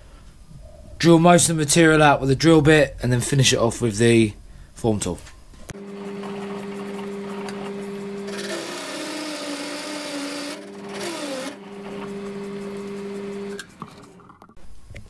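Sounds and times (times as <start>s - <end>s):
drill bit boring with chatter: 5.8s - 13.8s
lathe motor hum: 5.8s - 14.2s.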